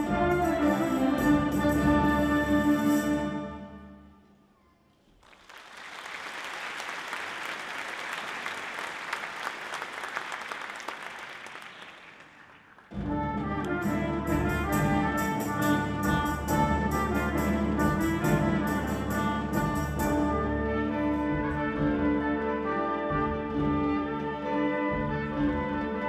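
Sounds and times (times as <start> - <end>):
wind orchestra playing: 0.0 - 4.0, 13.0 - 26.0
audience applauding: 5.1 - 13.0.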